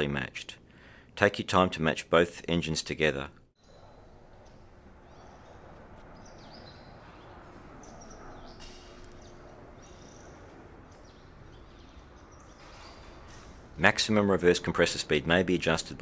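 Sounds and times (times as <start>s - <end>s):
steady low background noise: 0.0s - 16.0s
birds chirping: 3.6s - 16.0s.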